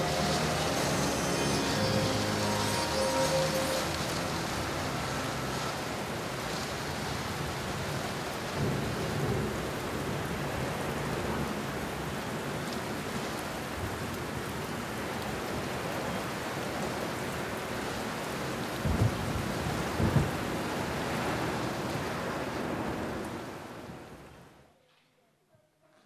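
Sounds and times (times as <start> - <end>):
heavy rain hiss: 0.0 - 24.5
thunder rumble and cracks: 5.6 - 12.1, 18.8 - 23.2.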